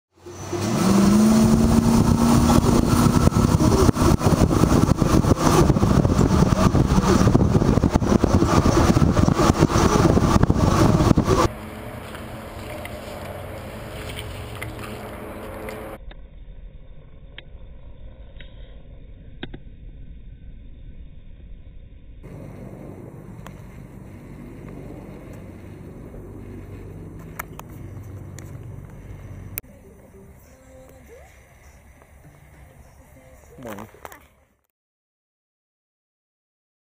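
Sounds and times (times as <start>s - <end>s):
quiet outdoor background: 0.1s - 34.7s
wind and road noise of van: 0.2s - 16.0s, 22.2s - 34.4s.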